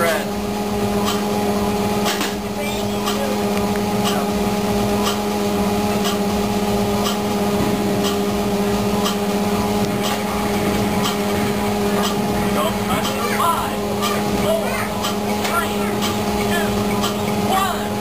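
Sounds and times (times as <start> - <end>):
steady hum: 0.0 - 18.0
timer ticking: 12.0 - 17.4.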